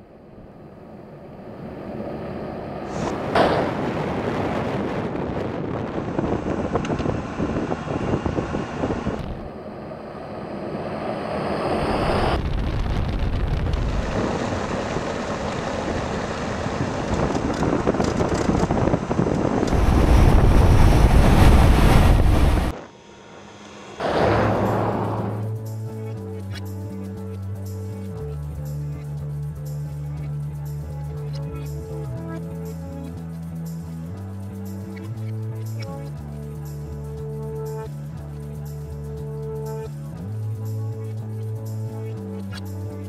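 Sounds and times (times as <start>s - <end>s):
tyre and engine noise: 1.2s - 25.7s
wind buffeting microphone: 2.8s - 9.5s, 11.9s - 22.8s
deep vehicle rumble: 11.8s - 22.8s, 23.4s - 43.0s.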